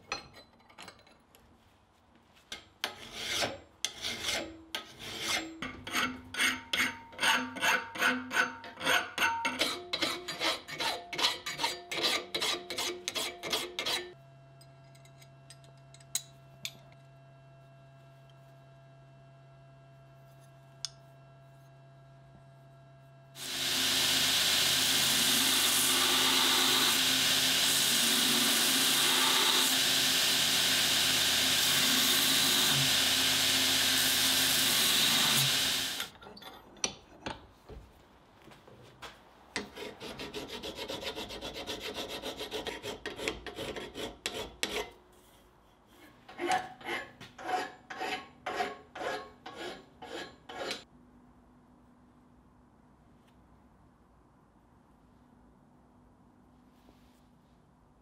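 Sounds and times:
hand file strokes on steel: 2.5s - 14.2s, 39.6s - 50.9s
belt grinder grinding steel: 23.4s - 36.2s.

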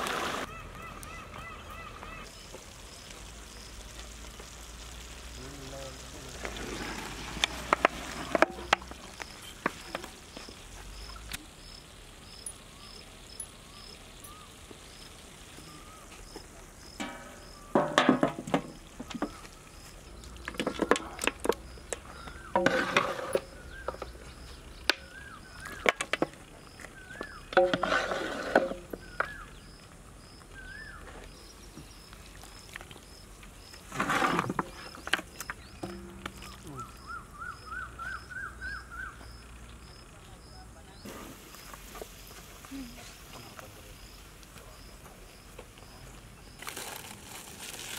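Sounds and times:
insect chirping: 0.4s - 47.9s
whistled bird calls: 13.6s - 14.6s, 15.6s - 16.2s, 25.0s - 26.0s, 29.0s - 29.7s, 30.5s - 31.2s, 36.5s - 39.3s.

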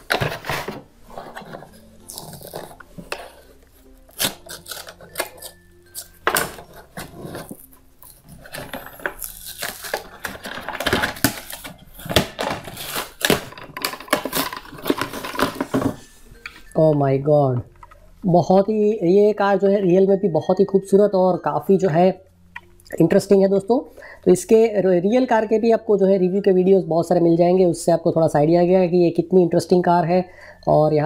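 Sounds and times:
plastic packaging crackling: 0.0s - 16.7s.

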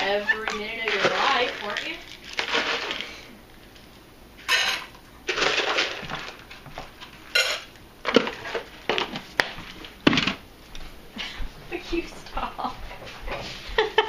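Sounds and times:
kibble rattling into metal bowls: 0.0s - 3.2s, 4.5s - 6.6s.

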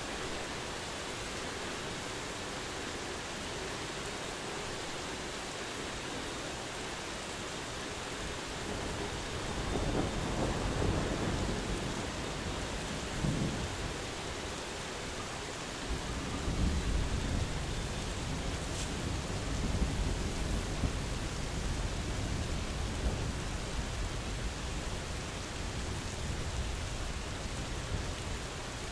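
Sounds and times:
rain falling steadily: 0.0s - 28.9s
distant thunder rumbling: 8.7s - 14.3s.

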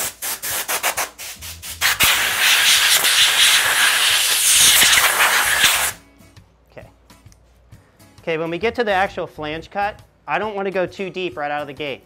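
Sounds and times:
hand rubbing foam dust: 0.0s - 6.0s.

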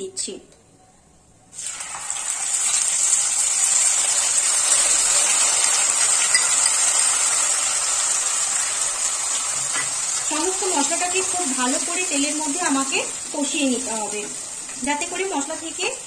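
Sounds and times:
paste sizzling in hot oil: 1.6s - 16.0s.

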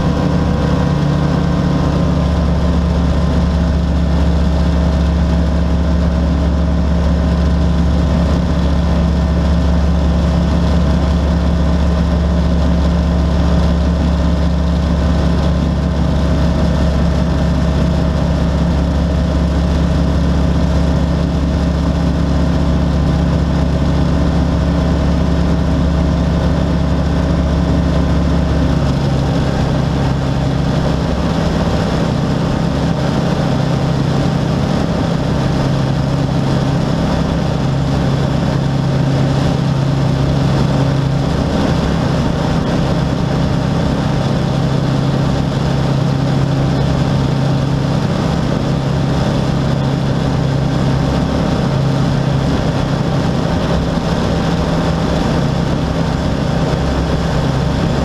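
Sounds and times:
light aircraft engine droning: 0.0s - 58.0s.

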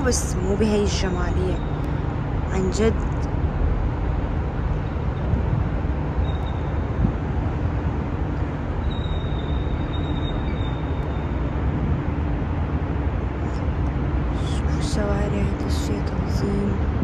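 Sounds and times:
city traffic rumble: 0.0s - 17.0s
faint high whine: 8.4s - 12.0s.

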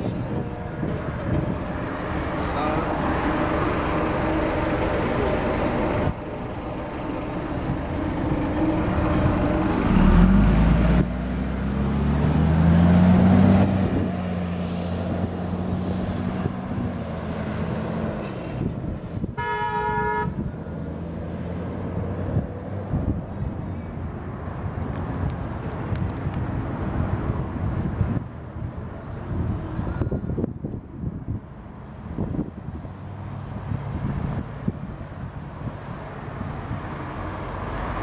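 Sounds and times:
road traffic passing: 0.0s - 38.0s
vehicle engine accelerating past: 1.8s - 18.7s
short car horn toot: 19.4s - 20.4s.

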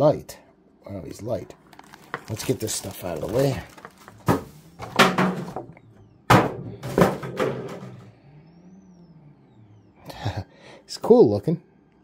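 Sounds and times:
plastic packaging crackling: 1.6s - 5.2s.

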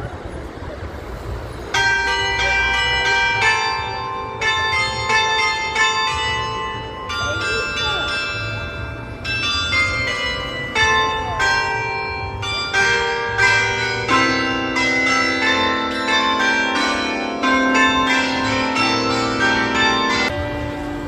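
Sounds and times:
carillon bells playing tune: 1.7s - 21.0s.

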